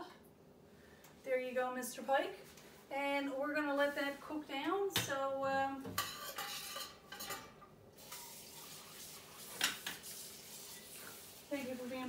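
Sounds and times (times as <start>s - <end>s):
utensil scraping in metal pot: 6.0s - 12.0s.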